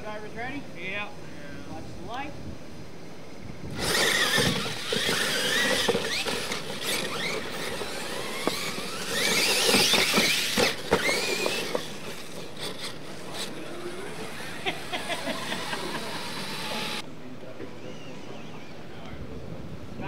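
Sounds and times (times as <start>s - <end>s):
electric motors whining: 3.6s - 17.0s.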